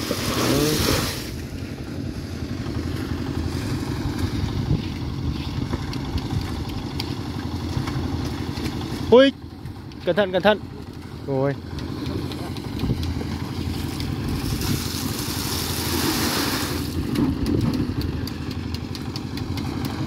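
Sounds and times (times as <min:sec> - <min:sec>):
small engine running: 0:00.0 - 0:20.0.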